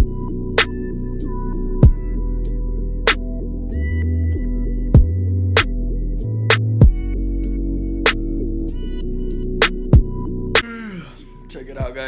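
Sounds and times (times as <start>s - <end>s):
electronic music with steady beat: 0.0s - 12.0s.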